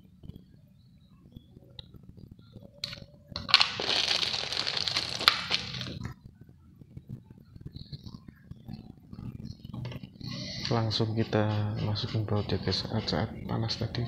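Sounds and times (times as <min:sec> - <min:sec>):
soldering iron melting plastic crackling: 0:03.5 - 0:06.0.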